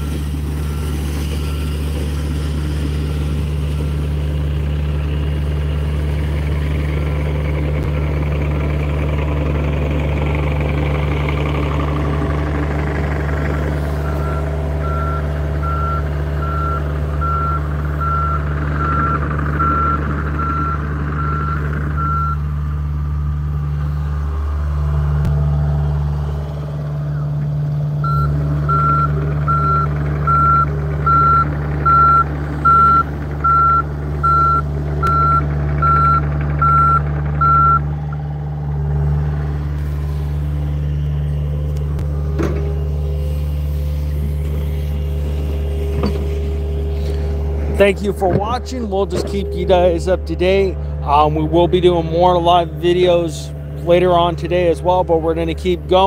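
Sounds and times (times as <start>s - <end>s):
excavator diesel engine running: 0.0s - 56.0s
travel alarm beeps: 14.0s - 22.4s, 28.0s - 37.8s.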